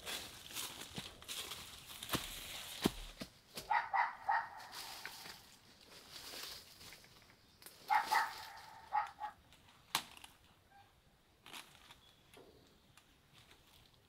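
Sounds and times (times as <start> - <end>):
rustling in undergrowth: 0.0 - 10.5, 11.4 - 14.0
chicken squawking in alarm: 7.9 - 9.4.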